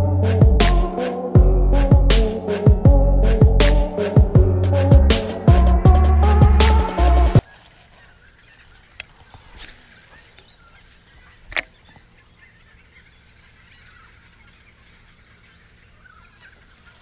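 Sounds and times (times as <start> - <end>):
background music: 0.0 - 7.4
outdoor river ambience: 7.4 - 17.0.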